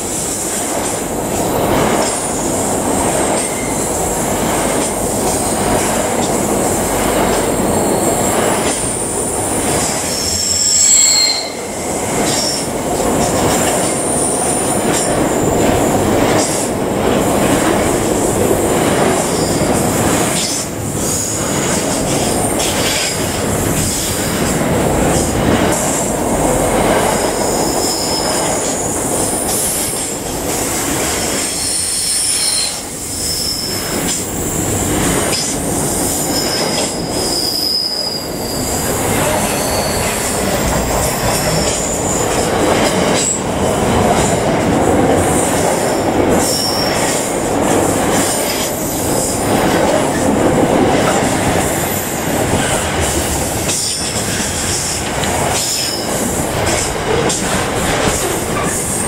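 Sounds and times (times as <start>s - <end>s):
freight train rumbling past: 0.0s - 59.0s
train wheel squeals: 3.3s - 4.2s, 7.3s - 15.6s, 19.1s - 26.1s, 27.4s - 30.2s, 31.1s - 43.5s, 45.4s - 47.4s, 51.2s - 59.0s.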